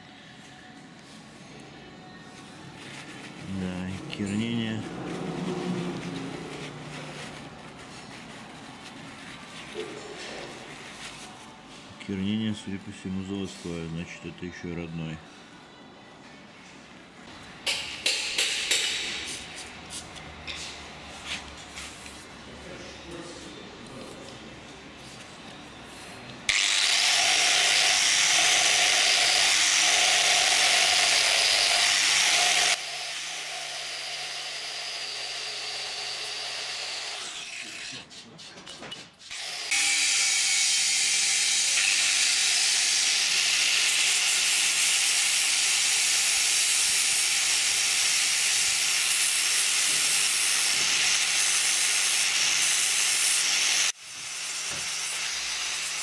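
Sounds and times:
angle grinder grinding metal: 26.5 - 38.1, 39.3 - 56.0.

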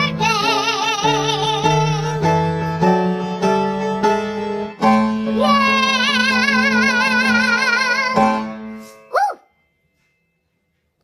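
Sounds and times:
woman singing with vibrato: 0.0 - 2.4, 5.2 - 8.7
instrumental music: 0.0 - 11.0.

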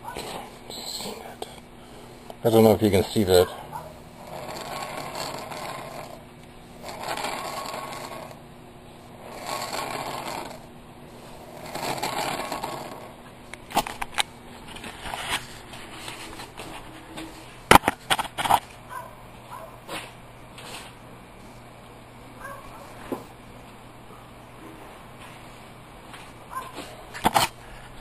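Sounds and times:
metal lathe whirring: 4.1 - 6.2, 6.8 - 8.4, 9.2 - 10.7.

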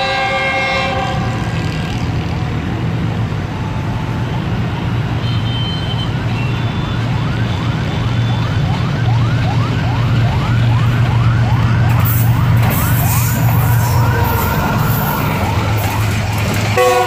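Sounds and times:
diesel locomotive engine drone: 0.0 - 17.0
siren-like yelp: 6.7 - 17.0.

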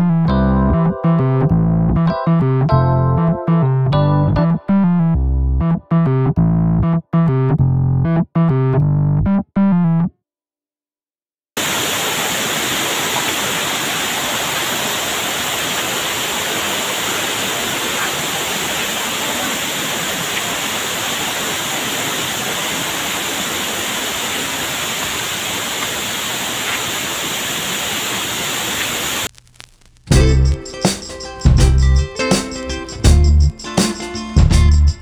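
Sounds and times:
waterfall rushing: 11.6 - 29.3.

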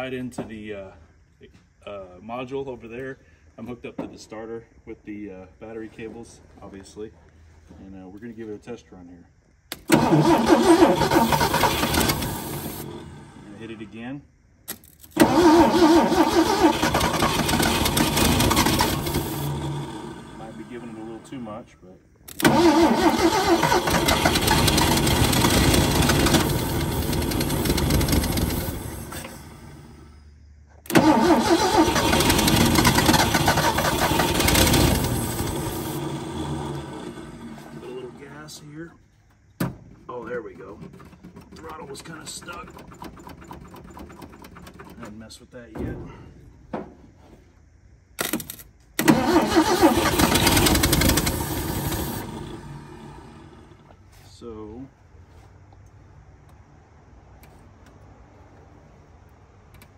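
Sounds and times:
car engine running: 22.4 - 29.8, 31.8 - 38.1, 49.0 - 54.0.

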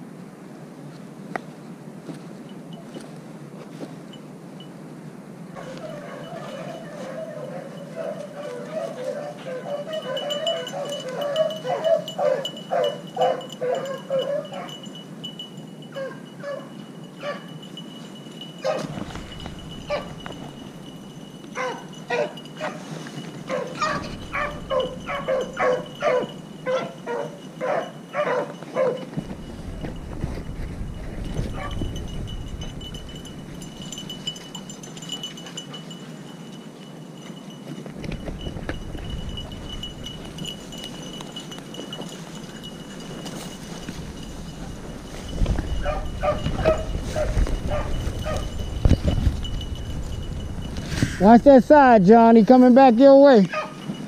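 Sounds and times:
dogs baying: 5.6 - 15.0, 15.8 - 17.8, 18.4 - 36.7, 38.6 - 51.2, 53.5 - 54.0.

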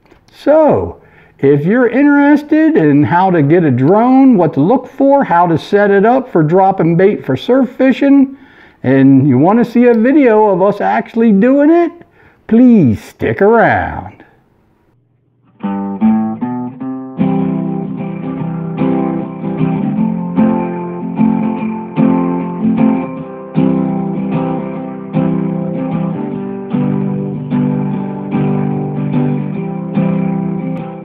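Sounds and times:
acoustic guitar playing: 0.0 - 12.7, 14.9 - 31.0.

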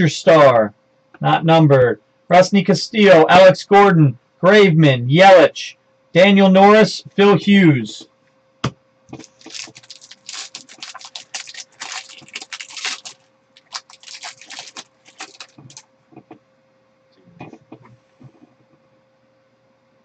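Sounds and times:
cards rustling: 9.2 - 15.8
foil wrapper crinkling and tearing: 9.2 - 15.8.

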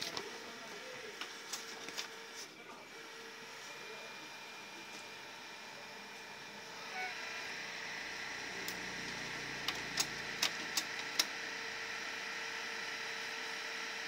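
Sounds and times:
printer motor whine: 0.0 - 14.0
sharp printer clicks: 8.4 - 11.5.

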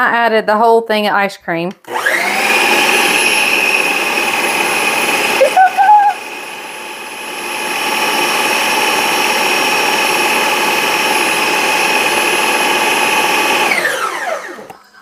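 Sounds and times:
electric blender running: 1.8 - 14.8
blender motor spinning down: 1.9 - 14.7.

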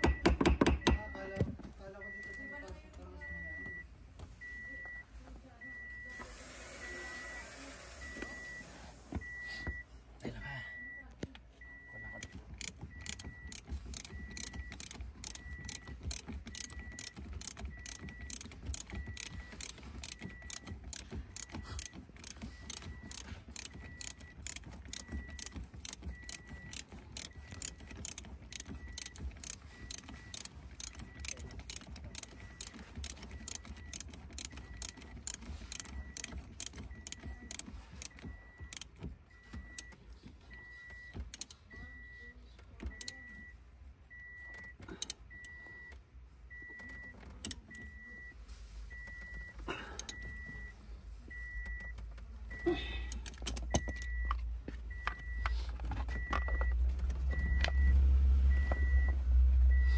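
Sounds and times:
short high beep: 5.6 - 9.8
ratchet wrench clicking: 12.2 - 39.0.

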